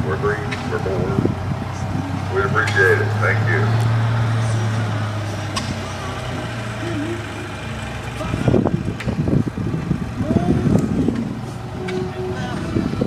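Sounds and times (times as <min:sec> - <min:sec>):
engine humming: 0:00.0 - 0:13.0
faint voices: 0:00.0 - 0:13.0
irregular low rumbling: 0:00.0 - 0:13.0.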